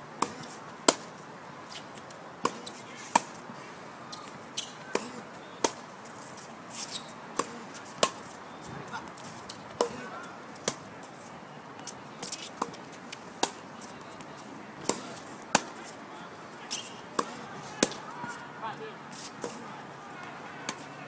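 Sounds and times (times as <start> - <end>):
tennis ball bouncing on court: 0.2 - 1.1, 2.4 - 3.4, 4.1 - 5.9, 6.9 - 10.9, 11.8 - 13.7, 14.3 - 15.9, 16.7 - 18.4, 19.3 - 20.9
tennis ball hitting racket: 0.2 - 1.1, 1.7 - 3.4, 4.1 - 10.9, 11.8 - 16.0, 16.7 - 18.4, 19.1 - 20.9.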